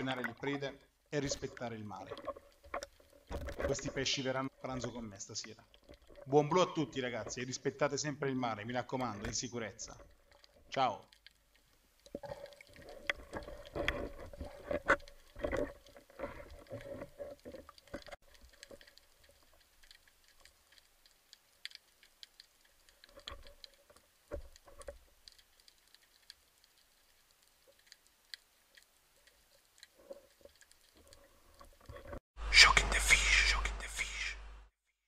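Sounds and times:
underwater clicks and crackles: 0.0s - 32.2s
underwater knocks and rubbing: 2.1s - 4.8s, 12.1s - 19.6s.

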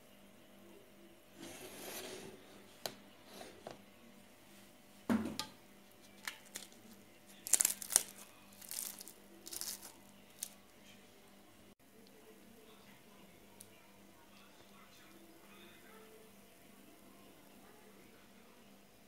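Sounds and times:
flaky pastry crust crackling: 5.9s - 11.0s.

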